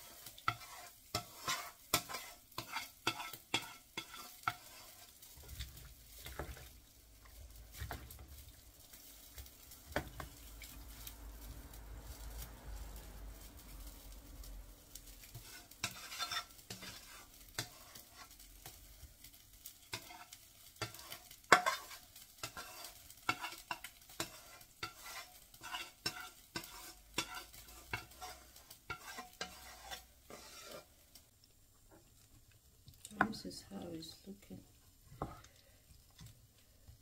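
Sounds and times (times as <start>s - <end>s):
spatula scraping pan: 0.0s - 11.1s, 15.0s - 31.2s.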